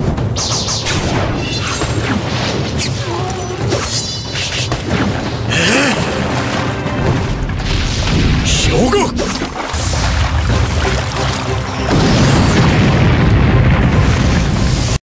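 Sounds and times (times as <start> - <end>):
dramatic fight music: 0.0 - 15.0
booming impact effects: 11.8 - 15.0.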